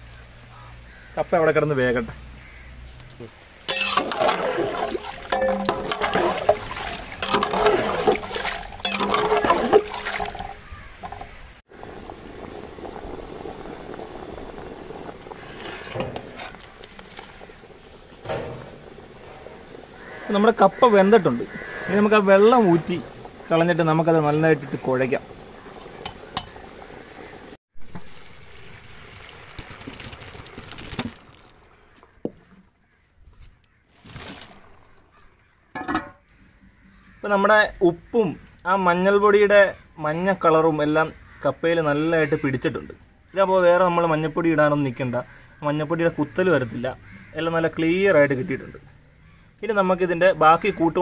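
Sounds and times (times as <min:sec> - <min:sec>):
spatula scraping a pot: 0:03.7 - 0:11.3, 0:15.4 - 0:17.6
water sloshing in a pot: 0:03.7 - 0:11.4
water pouring into a strainer: 0:27.9 - 0:31.7.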